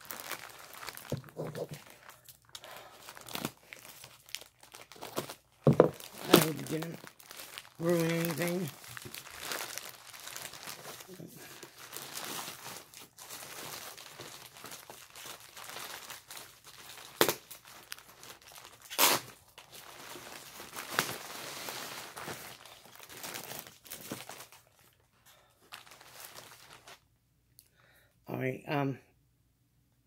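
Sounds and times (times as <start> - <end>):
sharp plastic crackles: 0.0 - 24.7
plastic packaging crinkling: 0.0 - 27.0.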